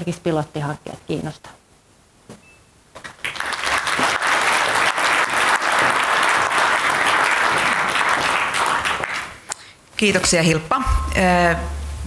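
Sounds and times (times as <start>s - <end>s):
audience applauding: 3.0s - 9.5s.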